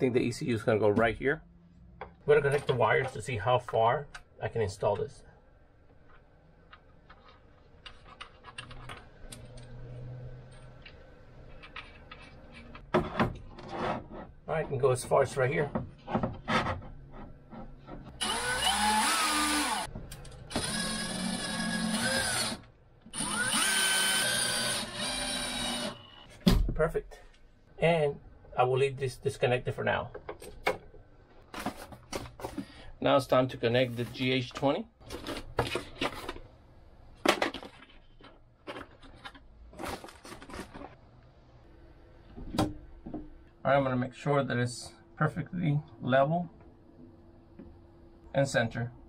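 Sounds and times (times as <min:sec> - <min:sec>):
cordless drill running: 0:18.2 - 0:19.9, 0:20.5 - 0:26.2
packaging rustling and clattering: 0:31.4 - 0:32.8, 0:35.0 - 0:36.5, 0:37.2 - 0:41.0.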